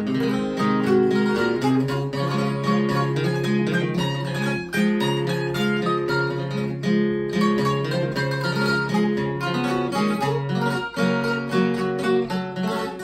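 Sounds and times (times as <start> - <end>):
acoustic guitar strumming: 0.0 - 13.0
mandolin picking: 0.0 - 13.0.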